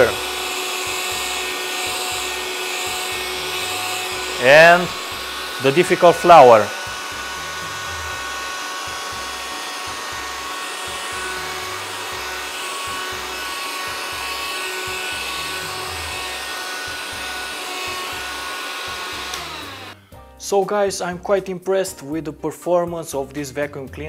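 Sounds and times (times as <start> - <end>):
cordless vacuum running: 0.0 - 20.1.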